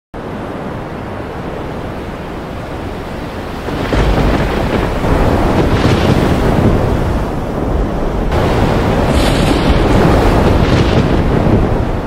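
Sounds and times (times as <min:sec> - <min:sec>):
wind and waves rushing: 0:00.2 - 0:12.0
deep rumble: 0:03.6 - 0:12.0.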